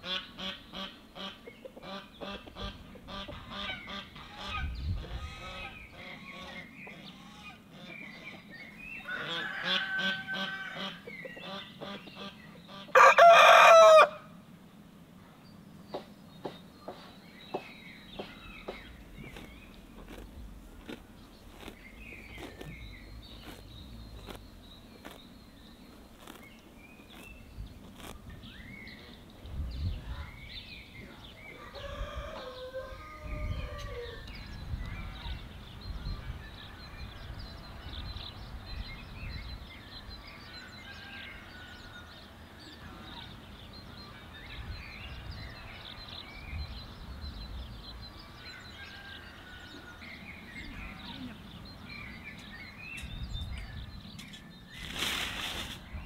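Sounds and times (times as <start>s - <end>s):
small birds chirping: 0.0s - 13.0s, 15.2s - 56.0s
rooster crowing: 9.1s - 10.9s, 12.9s - 14.3s, 31.6s - 34.2s.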